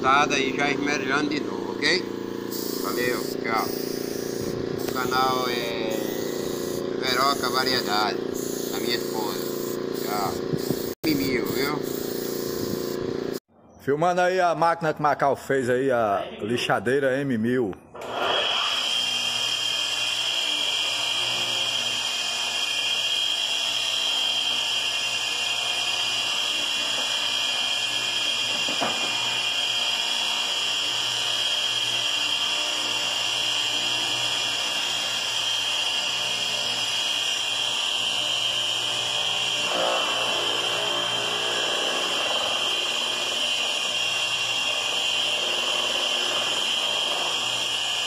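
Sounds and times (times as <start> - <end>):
grinder high whine: 0.0 - 13.4, 18.0 - 48.0
rougher grinding sound: 0.0 - 13.4, 18.0 - 48.0.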